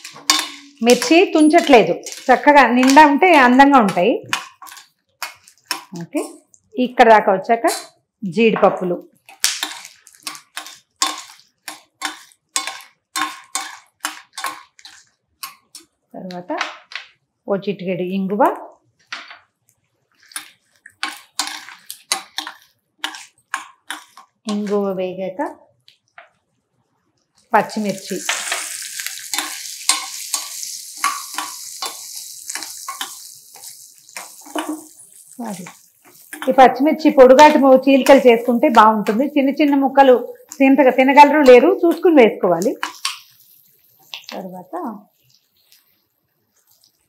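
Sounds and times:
metal spoon scraping steel pan: 0.0s - 5.8s, 20.3s - 24.8s, 28.0s - 36.7s
nuts frying in oil: 0.0s - 6.8s, 9.1s - 17.2s, 20.1s - 26.1s, 27.4s - 47.0s.

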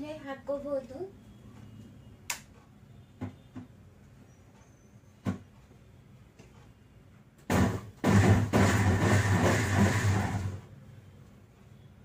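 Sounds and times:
electric mixer grinder running: 7.5s - 10.6s.

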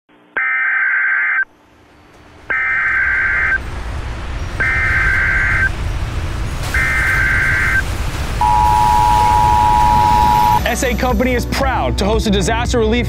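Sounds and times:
low rumbling noise: 1.4s - 11.3s
warbling digital data tones: 2.5s - 5.9s, 6.6s - 11.2s.

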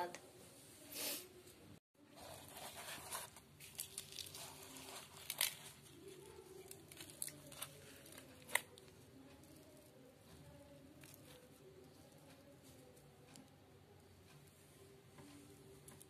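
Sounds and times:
crisp pastry tearing and crackling: 2.2s - 9.9s.

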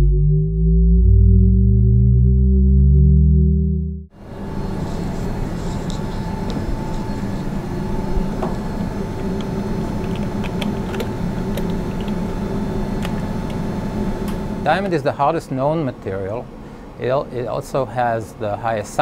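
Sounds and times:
laboratory machine hum: 4.1s - 19.0s.

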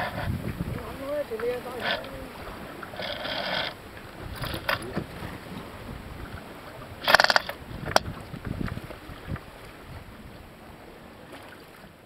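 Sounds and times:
hiss of wind and water: 0.0s - 12.0s
ratcheting deck hardware clicks: 7.0s - 8.0s.

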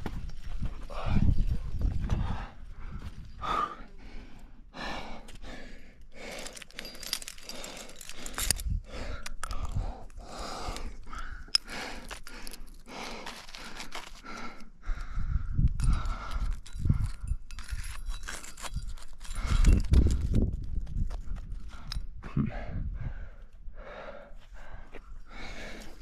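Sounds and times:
person breathing hard: 2.0s - 17.8s, 21.5s - 26.0s
metallic clicks of climbing gear: 5.2s - 22.2s.

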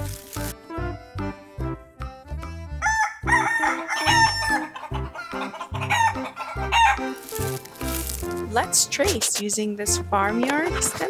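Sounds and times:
light background music: 0.0s - 11.0s
rooster crowing: 2.8s - 7.1s
chickens clucking: 3.6s - 8.1s.

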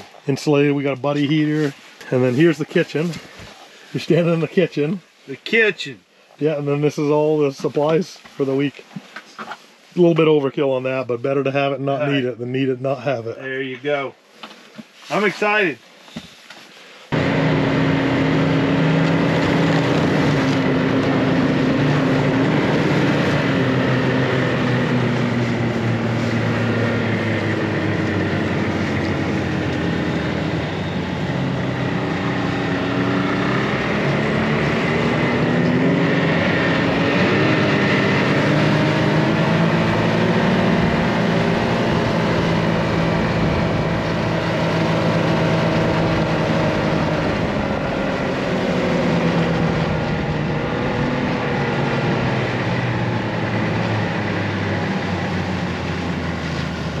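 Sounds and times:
snowmobile engine running: 17.1s - 57.0s.

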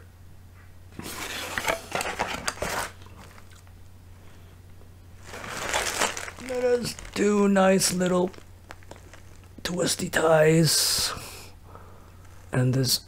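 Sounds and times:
plastic cord rustling and scraping: 1.0s - 3.7s, 5.2s - 9.8s, 12.2s - 12.6s.

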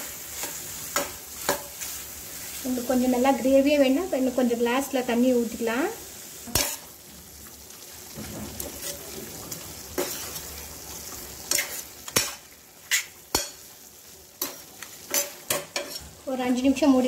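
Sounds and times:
food sizzling: 0.0s - 17.0s
spoon scraping metal pan: 11.4s - 13.7s, 14.4s - 16.1s.

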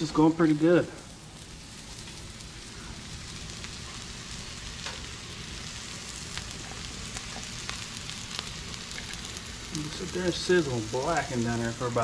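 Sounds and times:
fish sizzling on a griddle: 0.0s - 12.0s.

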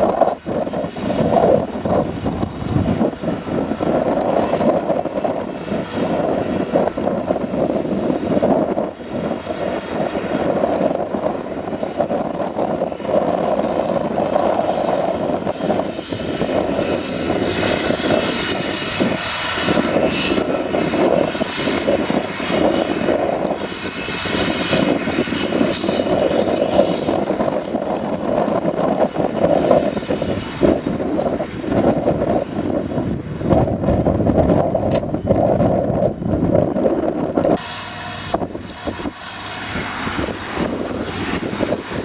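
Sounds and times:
forage harvester engine drone: 0.0s - 42.0s
tractor running: 0.0s - 42.0s
rushing hiss of blown grass: 37.6s - 42.0s.

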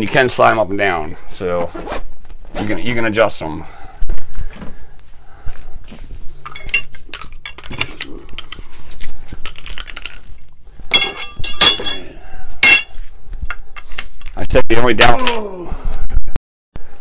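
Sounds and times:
metal poles clinking together: 6.4s - 8.6s, 10.9s - 14.4s.

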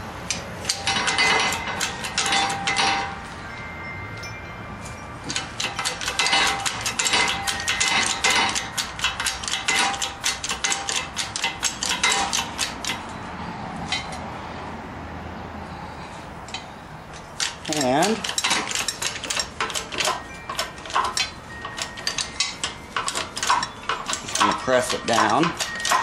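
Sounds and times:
rapid metallic clicking: 0.2s - 3.3s, 5.2s - 13.2s, 16.5s - 26.0s.

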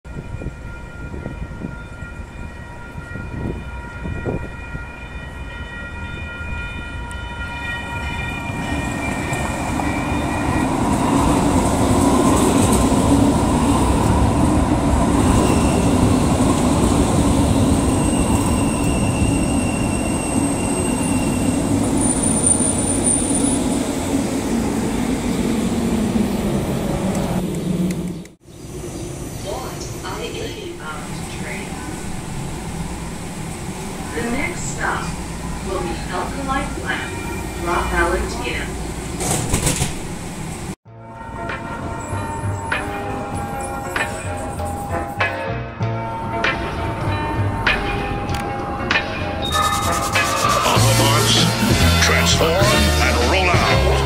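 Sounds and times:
light rail train rumble: 0.1s - 45.4s.

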